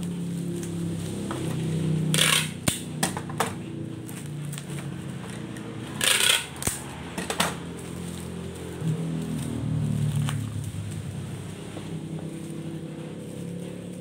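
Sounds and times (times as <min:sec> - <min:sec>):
bubble wrap crinkling: 0:07.7 - 0:12.6.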